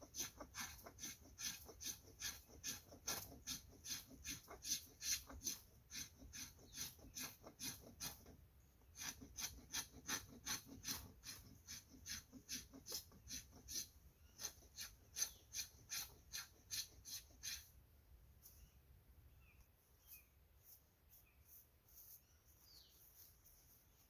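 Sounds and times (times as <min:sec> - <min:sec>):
knife scraping wood: 0:00.0 - 0:17.8.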